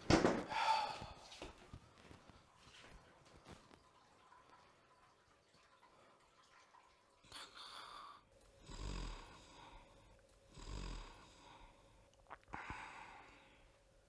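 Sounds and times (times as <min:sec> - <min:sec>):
man snoring: 0:07.4 - 0:09.9, 0:10.5 - 0:11.8
soft breath: 0:11.0 - 0:13.8.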